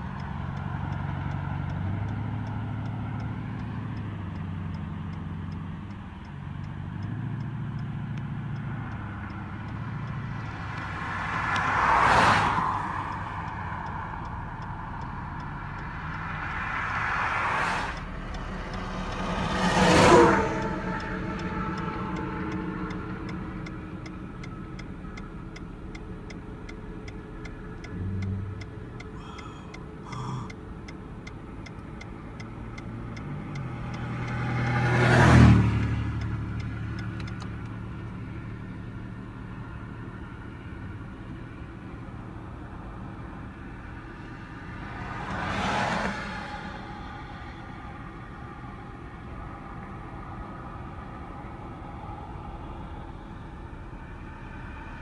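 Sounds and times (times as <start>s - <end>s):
faint regular ticking: 0.0s - 11.8s, 12.6s - 17.0s, 17.7s - 34.8s, 35.8s - 38.6s
vehicles passing on road: 0.0s - 55.0s.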